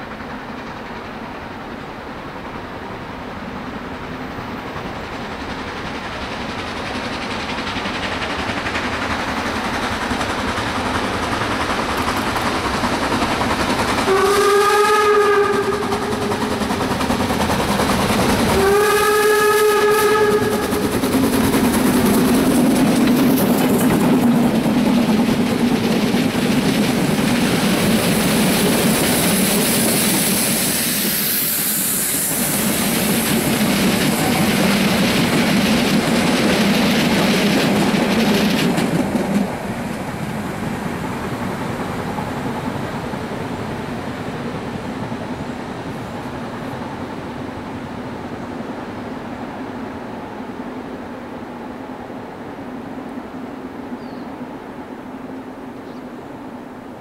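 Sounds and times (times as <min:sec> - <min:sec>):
steam locomotive exhaust: 0:00.0 - 0:46.7
train wheels on rails: 0:00.0 - 0:57.0
steam whistle: 0:14.1 - 0:16.5, 0:18.6 - 0:20.8.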